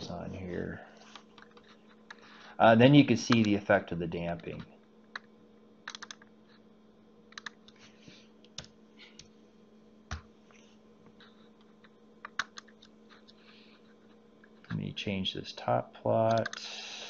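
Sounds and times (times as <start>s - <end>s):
faint steady hum: 0.0s - 17.0s
computer keyboard keystrokes: 4.5s - 6.2s, 7.3s - 7.8s, 12.2s - 12.8s, 16.3s - 16.6s.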